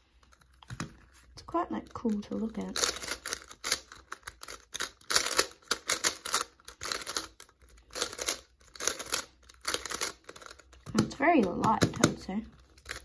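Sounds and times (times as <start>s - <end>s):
plastic puzzle cube clicks: 2.8s - 13.0s.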